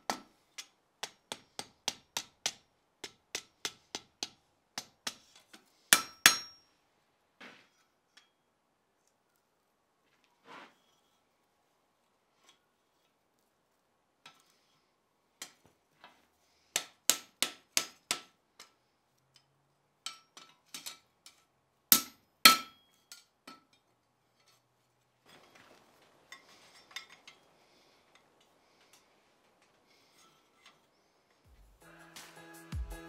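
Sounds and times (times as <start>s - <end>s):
hammer striking iron on anvil: 0.0s - 5.2s, 5.9s - 6.7s, 16.8s - 18.7s, 21.9s - 23.6s.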